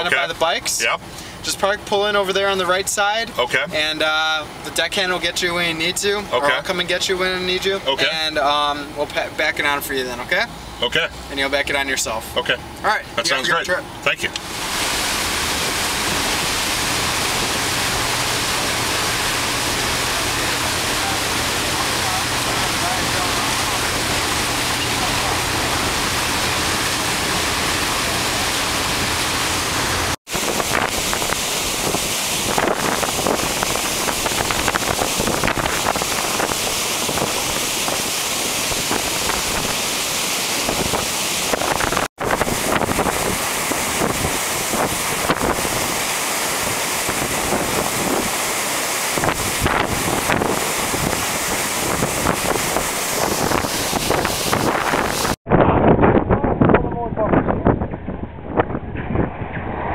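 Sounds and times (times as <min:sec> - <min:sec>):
water rushing along ship hull: 0:00.0 - 0:55.4
wind on microphone: 0:14.5 - 0:59.9.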